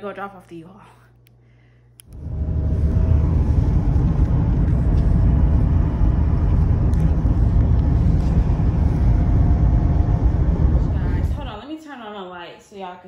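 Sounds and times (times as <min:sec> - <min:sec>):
car cabin road and engine rumble: 0:02.1 - 0:11.6.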